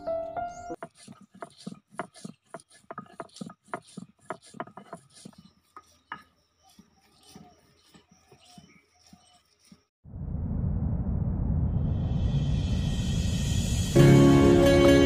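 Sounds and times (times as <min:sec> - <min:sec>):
stone grinding on stone slab: 0:00.8 - 0:09.9.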